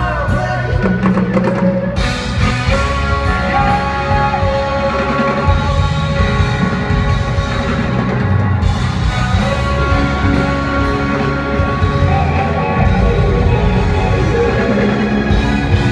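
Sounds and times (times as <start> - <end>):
drum kit: 0.0 - 15.9
live rock band playing: 0.0 - 15.9.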